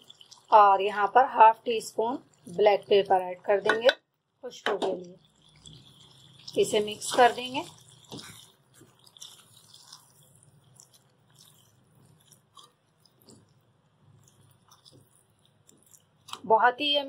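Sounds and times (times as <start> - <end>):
spatula stirring in metal pan: 5.2 - 16.4.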